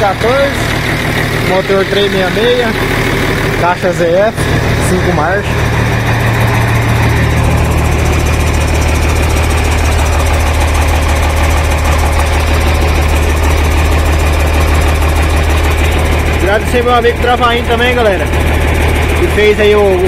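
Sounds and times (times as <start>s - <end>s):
diesel engine idling: 0.0s - 20.0s.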